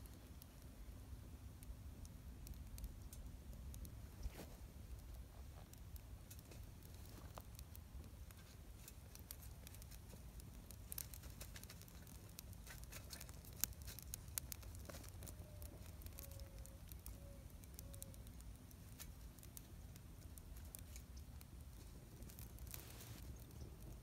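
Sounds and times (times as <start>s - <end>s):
wood fire crackling: 0.0s - 24.0s
sharp fire pops: 1.6s - 24.0s.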